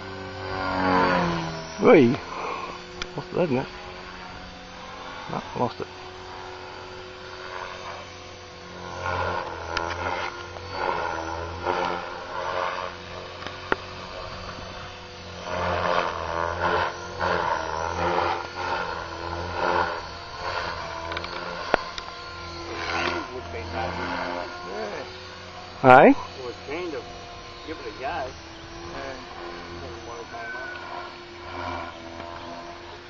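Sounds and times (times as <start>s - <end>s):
rc helicopter motor and rotor: 0.0s - 33.0s
sharp ticks: 20.4s - 22.1s.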